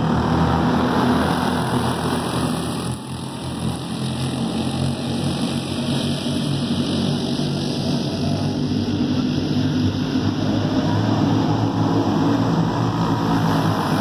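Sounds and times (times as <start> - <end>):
go-kart engines droning: 0.0 - 14.0.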